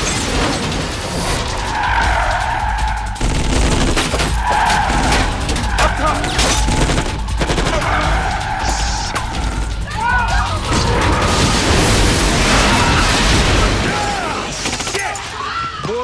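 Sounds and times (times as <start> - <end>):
crashes of smashing glass and metal: 0.0 - 2.3, 10.5 - 15.5
car tyres screeching: 1.1 - 3.2, 4.2 - 6.7, 7.3 - 9.8.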